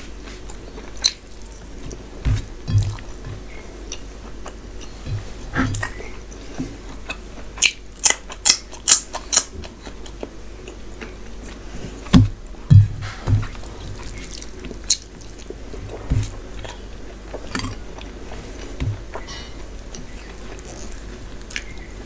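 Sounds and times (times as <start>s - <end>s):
chewing and wet mouth sounds: 0.0s - 12.4s, 13.4s - 22.0s
soft low thuds: 1.8s - 3.8s, 4.7s - 6.8s, 12.1s - 14.1s.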